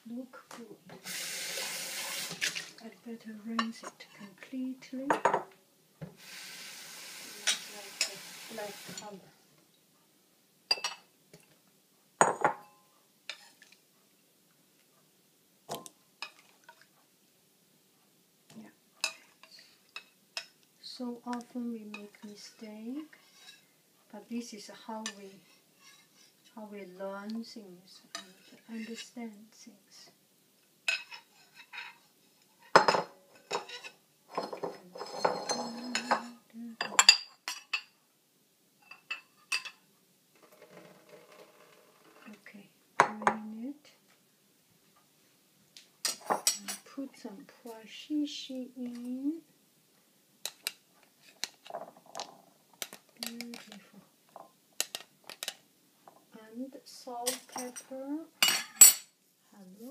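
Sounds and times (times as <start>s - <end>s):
metal spoon clinking bowl: 32.7s - 37.9s, 57.3s - 59.1s.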